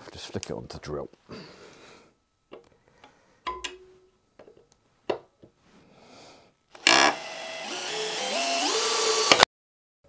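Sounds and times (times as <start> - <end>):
cordless drill motor whining: 6.7 - 9.5
drill clicks: 6.7 - 9.5.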